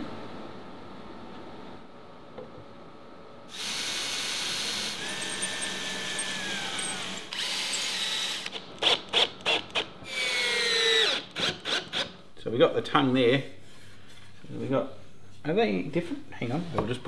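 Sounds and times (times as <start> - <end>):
cordless drill driving screws: 3.5 - 12.2.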